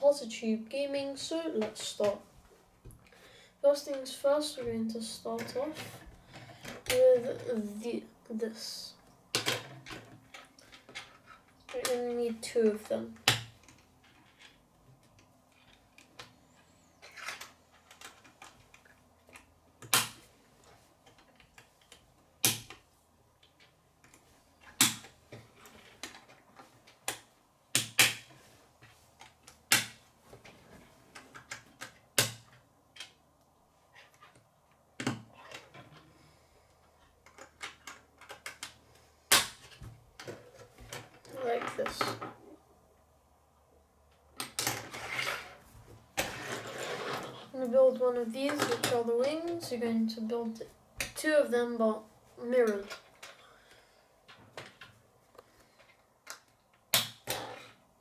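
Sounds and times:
plastic pieces clicking together: 37.2s - 41.1s.

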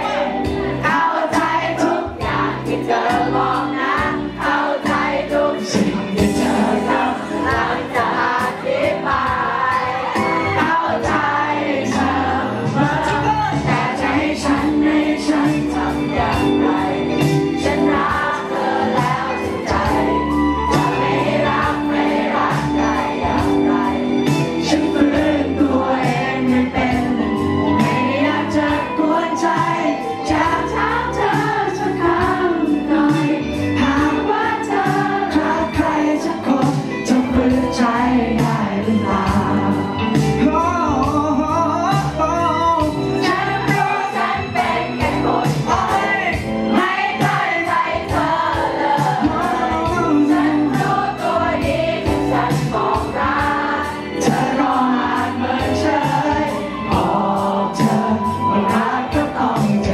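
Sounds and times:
man singing pop song: 0.0s - 9.5s, 10.5s - 20.0s, 24.2s - 51.0s, 54.2s - 59.9s
instrumental accompaniment: 0.0s - 59.9s.

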